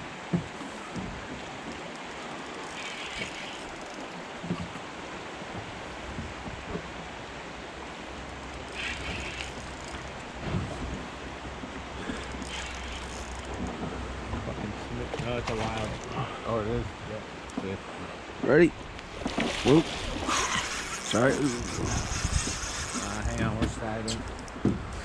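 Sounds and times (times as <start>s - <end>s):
river water rushing: 0.0s - 21.9s
wind on microphone: 19.6s - 25.0s.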